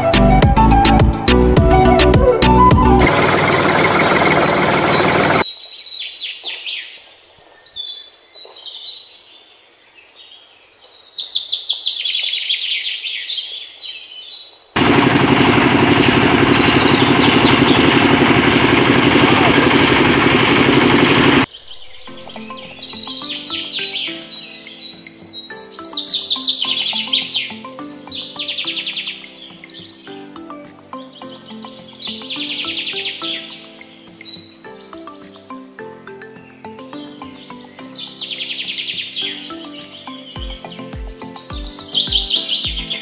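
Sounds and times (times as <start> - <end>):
loud steady noise with low hum: 3.0 - 5.4, 14.8 - 21.5
small birds chirping: 3.5 - 14.8, 16.2 - 43.0.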